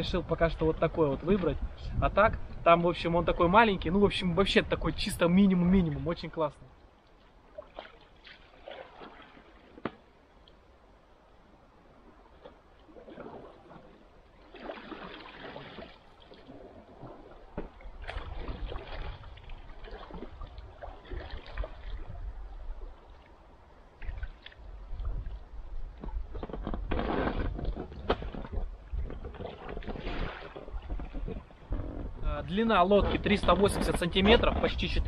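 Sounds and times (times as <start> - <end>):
paddle splashing in water: 7.1 - 10.3, 11.9 - 32.1.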